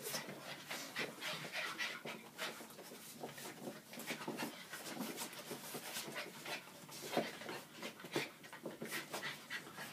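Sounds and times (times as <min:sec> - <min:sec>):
puppies panting: 0:00.0 - 0:09.9.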